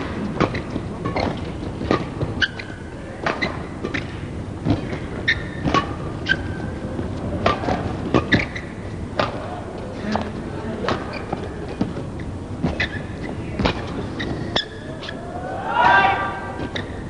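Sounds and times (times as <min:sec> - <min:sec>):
racket hitting shuttlecock: 0:00.0 - 0:06.5, 0:07.4 - 0:08.6, 0:09.2 - 0:09.6
shoes squeaking on mat: 0:00.0 - 0:17.0.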